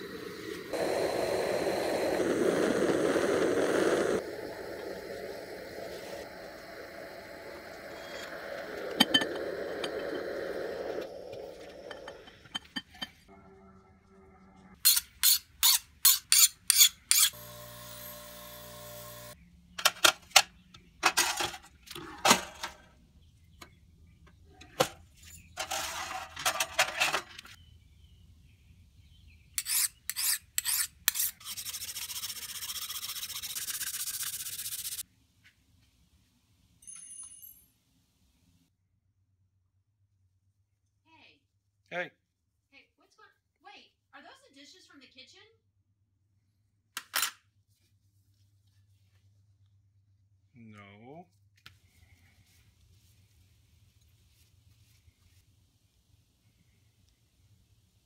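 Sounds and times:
steady hiss: 0.0 - 12.0
torch flame roaring: 0.0 - 12.3
buzzing hum: 17.4 - 19.4.

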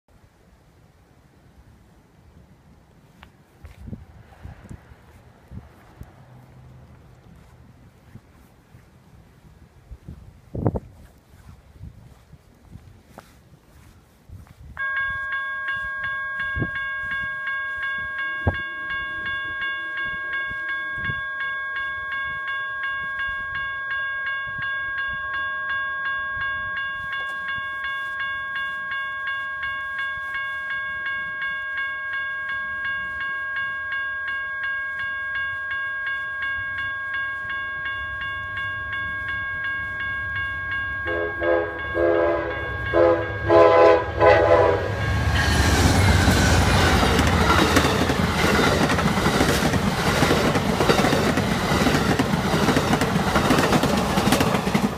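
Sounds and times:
crossing bell ringing: 14.8 - 54.9
locomotive horn blasts: 41.0 - 45.4
train wheels clacking over rail joints: 45.5 - 54.9.

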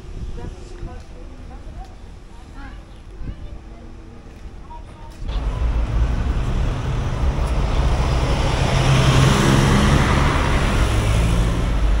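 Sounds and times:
bus passing by: 5.2 - 12.0
van passing: 5.3 - 12.0.

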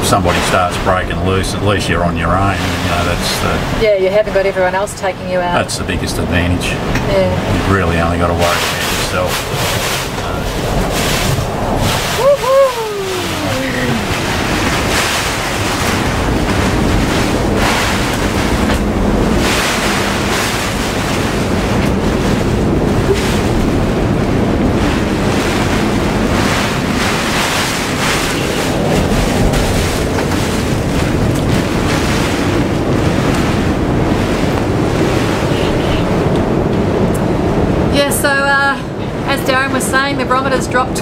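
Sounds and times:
wind and driving rain roaring: 0.0 - 41.0.

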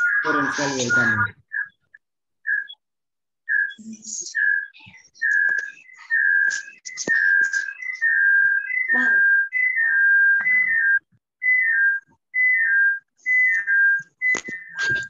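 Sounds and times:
person whistling: 8.8 - 15.0.

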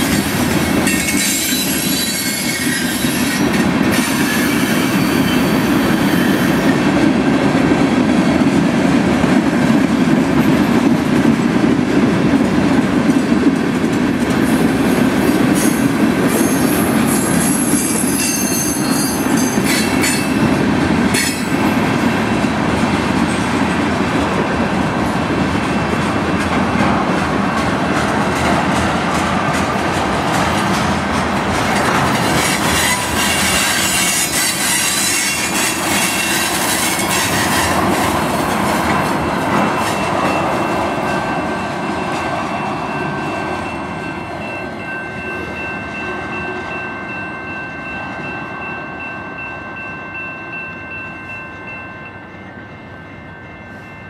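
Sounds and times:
freight train rolling on rails: 0.0 - 54.0
high wheel squeal: 0.9 - 6.7, 15.6 - 20.4, 32.2 - 37.8.

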